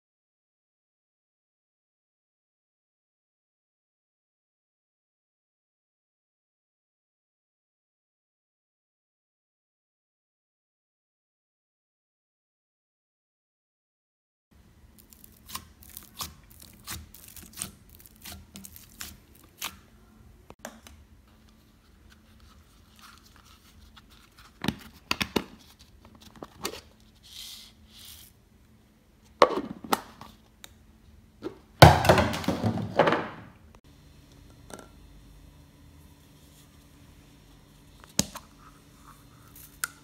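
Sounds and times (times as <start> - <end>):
hands squishing slime: 15.0 - 19.8.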